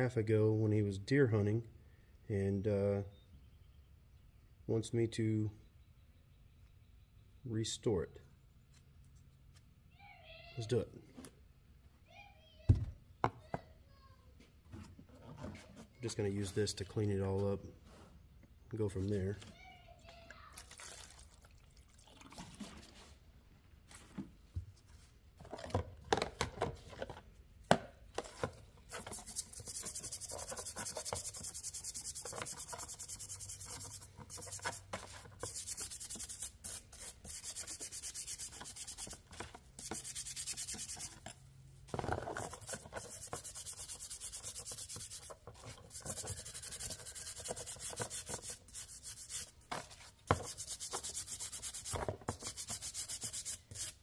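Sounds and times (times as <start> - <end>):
scratchy scrubbing of rust: 28.9 - 39.2, 39.8 - 41.3, 42.3 - 54.0.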